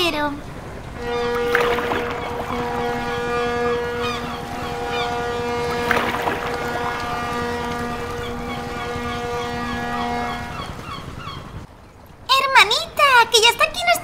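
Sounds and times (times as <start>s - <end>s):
sea noise: 0.5s - 11.6s
water surging: 0.6s - 10.8s
droning horn-like tone: 0.9s - 10.8s.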